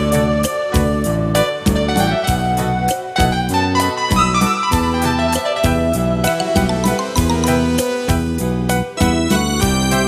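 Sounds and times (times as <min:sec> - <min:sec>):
keyboard chords: 0:02.3 - 0:09.5
bass line: 0:04.2 - 0:09.8
drum beat: 0:06.4 - 0:08.2.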